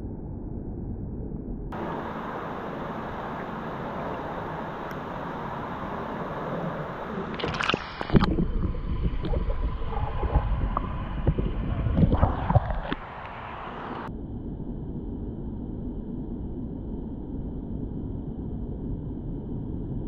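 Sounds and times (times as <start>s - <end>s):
water sloshing around kayak: 1.8s - 14.1s
water splash: 1.8s - 14.1s
underwater gurgling and knocks: 7.3s - 13.5s.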